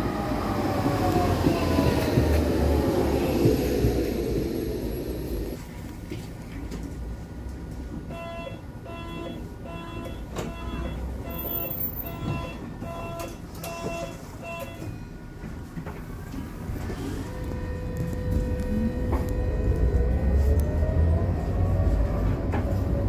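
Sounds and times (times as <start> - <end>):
door warning beeps: 8.1 - 15.1.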